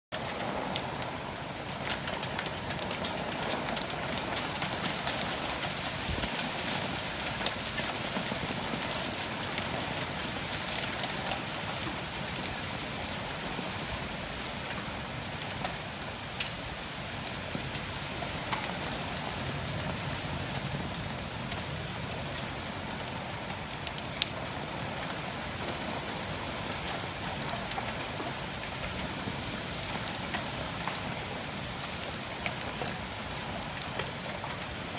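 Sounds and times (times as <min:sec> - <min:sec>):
heavy rain falling: 0:00.1 - 0:34.9
raindrops ticking close by: 0:00.2 - 0:34.9.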